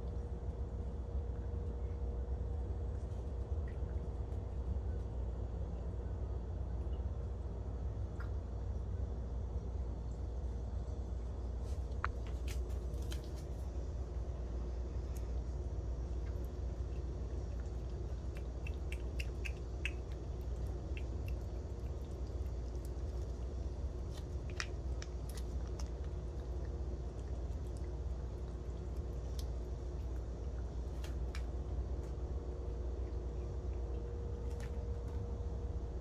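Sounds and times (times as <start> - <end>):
steady low hum: 0.0 - 36.0
cat licking and lapping: 15.0 - 31.6.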